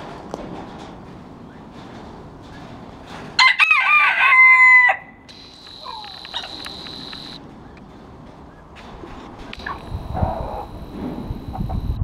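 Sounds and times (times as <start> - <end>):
rooster crowing: 3.4 - 7.4.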